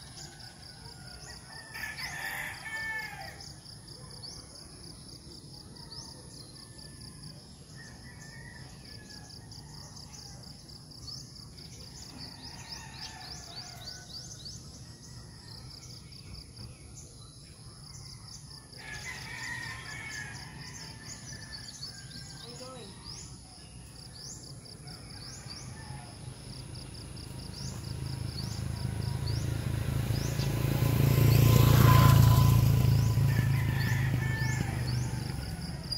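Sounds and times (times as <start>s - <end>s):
birds calling and chirping: 27.2s - 35.9s.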